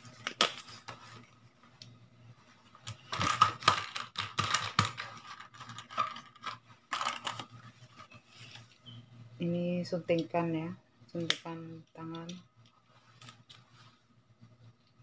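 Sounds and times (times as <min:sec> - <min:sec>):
plastic parts clicking and rustling: 0:02.8 - 0:08.7.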